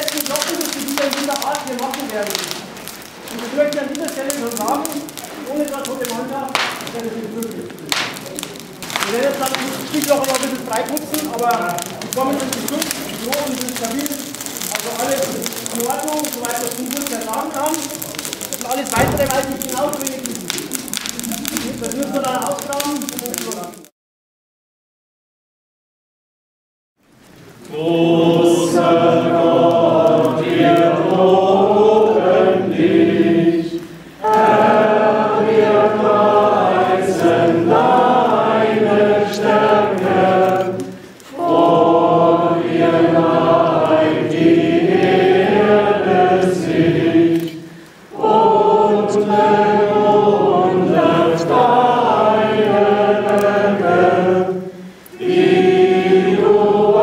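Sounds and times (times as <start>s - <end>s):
crowd singing a hymn: 18.3s - 20.5s, 27.6s - 57.0s.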